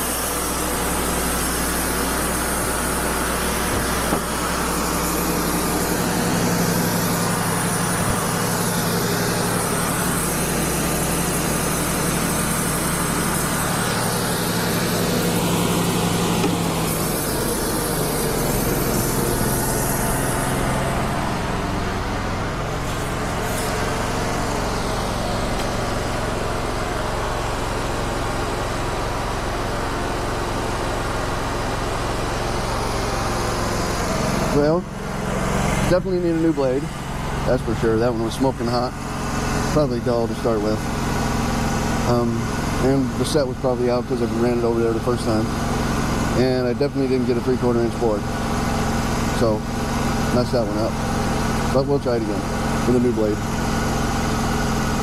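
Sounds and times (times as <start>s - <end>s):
band blade sawing wood: 0.0s - 27.2s
bandsaw engine running: 0.0s - 55.0s.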